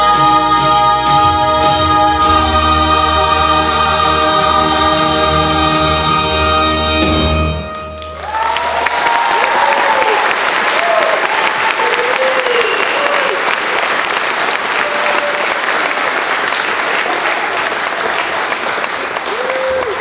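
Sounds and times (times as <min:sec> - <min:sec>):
audience applauding: 0:07.7 - 0:20.0
cheers and whoops: 0:08.2 - 0:13.6, 0:14.7 - 0:15.8, 0:19.2 - 0:20.0.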